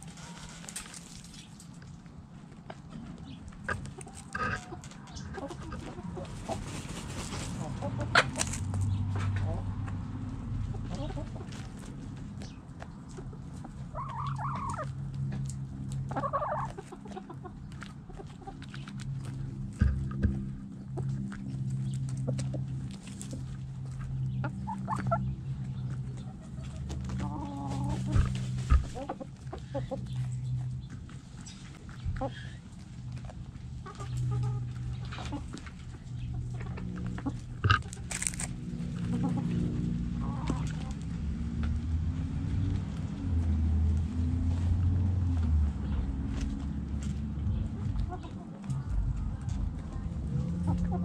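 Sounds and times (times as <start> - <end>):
hens clucking: 0.0 - 43.6, 44.2 - 51.0
hens scratching in dry dirt: 0.0 - 51.0
low steady hum: 14.9 - 42.2
low hum: 18.7 - 26.3.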